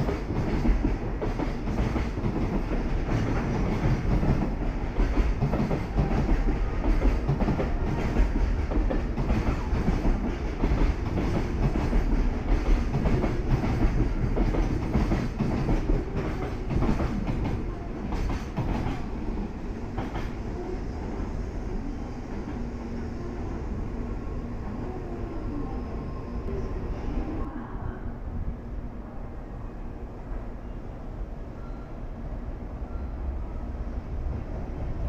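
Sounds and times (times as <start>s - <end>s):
freight train wheels clacking: 0.0s - 20.5s
train low rumble: 0.0s - 35.0s.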